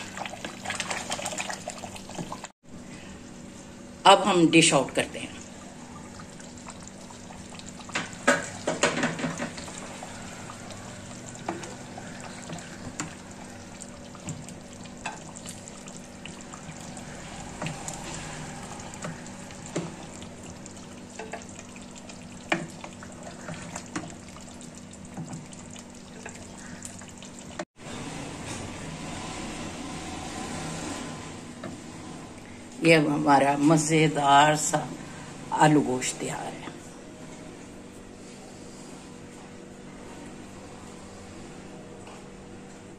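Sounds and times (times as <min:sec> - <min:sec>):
curry sizzling in a pot: 0:05.5 - 0:27.7.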